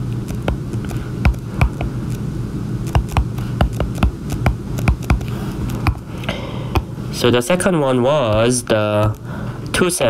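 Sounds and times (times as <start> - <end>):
stylus tapping on glass screen: 1.2 - 2.0, 2.9 - 6.0.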